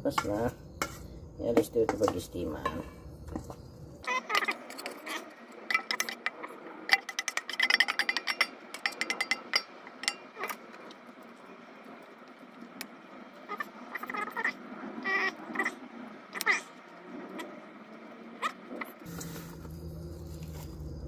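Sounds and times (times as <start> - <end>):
metal spoon scraping steel bowls: 0.1 - 3.5, 4.3 - 10.4, 19.1 - 21.0.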